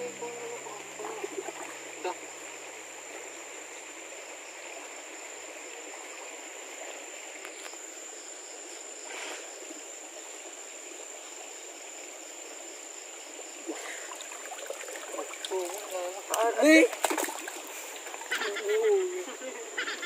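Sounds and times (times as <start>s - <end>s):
hands splashing water: 13.7s - 18.4s.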